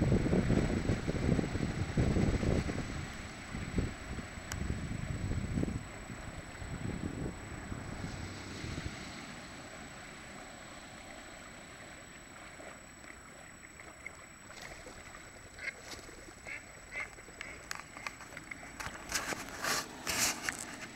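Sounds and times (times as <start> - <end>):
water sloshing from wading: 0.0 - 20.9
waterfowl calls: 13.4 - 20.8.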